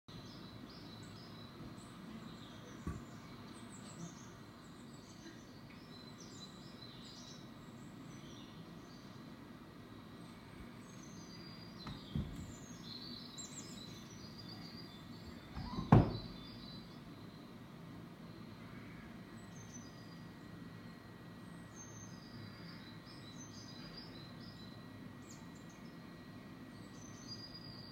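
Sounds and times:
songbirds chirping and trilling: 0.1s - 27.9s
steady background hiss: 0.1s - 27.9s
soft thumps: 11.8s - 12.6s.

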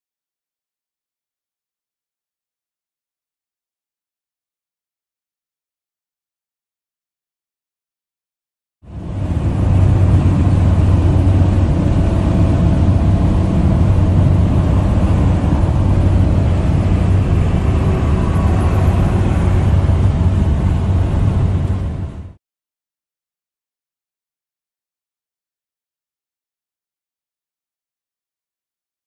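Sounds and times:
vehicle engine rumble: 8.8s - 22.4s
low hum: 8.9s - 22.4s.

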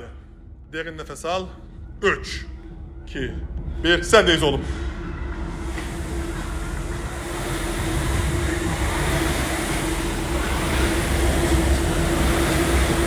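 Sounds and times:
steady hum: 0.0s - 13.0s
rowing machine flywheel whirring: 4.4s - 13.0s.

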